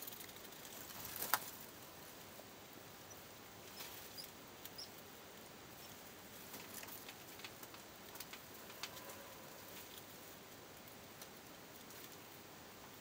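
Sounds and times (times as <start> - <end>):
mice squeaking: 3.0 - 5.0.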